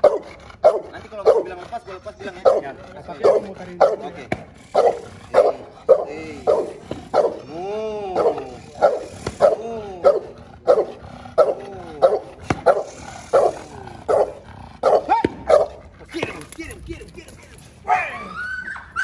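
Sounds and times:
dog barking: 0:00.0 - 0:01.6, 0:02.2 - 0:07.5, 0:08.1 - 0:15.9
dog whining: 0:01.2 - 0:16.0, 0:17.9 - 0:19.0.

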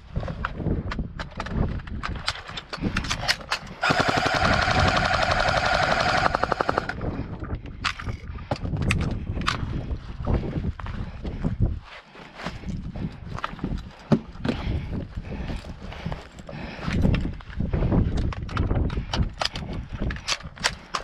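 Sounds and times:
sharp clicks: 0:02.3 - 0:07.0
airsoft rifle full-auto burst: 0:03.8 - 0:07.0.

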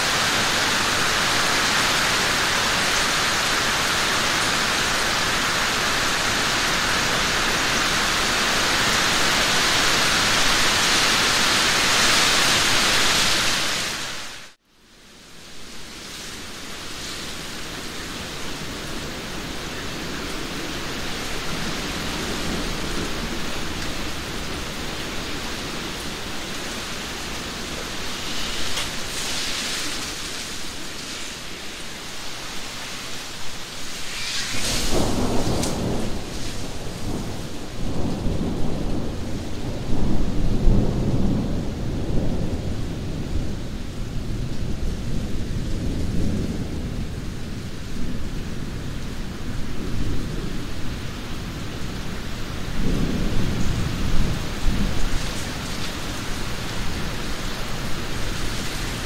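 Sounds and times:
heavy rain pouring: 0:00.0 - 0:59.0
thunder clap and rumble: 0:33.6 - 0:59.0.

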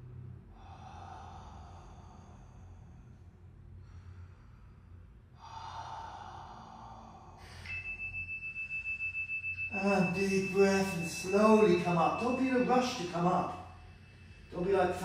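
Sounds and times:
heavy breathing through mouth: 0:00.5 - 0:07.8
pulsing high ringing tone: 0:07.5 - 0:15.0.

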